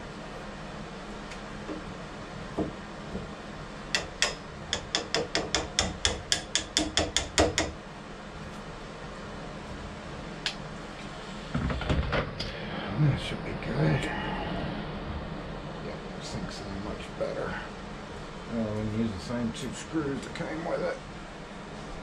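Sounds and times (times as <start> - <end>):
chisel tapping into wood: 4.0 - 7.8.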